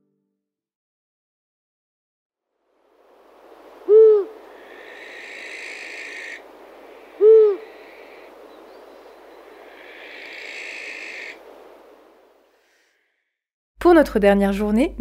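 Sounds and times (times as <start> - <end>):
soft background hiss: 2.9 - 12.8
owl hooting: 3.5 - 12.9.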